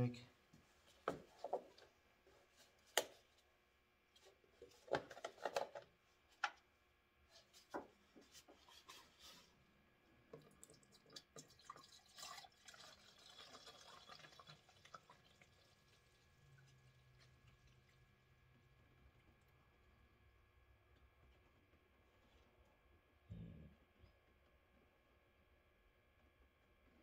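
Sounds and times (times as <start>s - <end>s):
coolant pouring into reservoir: 10.3s - 19.6s.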